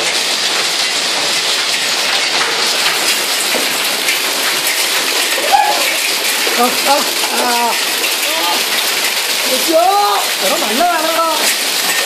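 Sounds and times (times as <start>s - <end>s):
hail and rain on concrete: 0.0s - 12.0s.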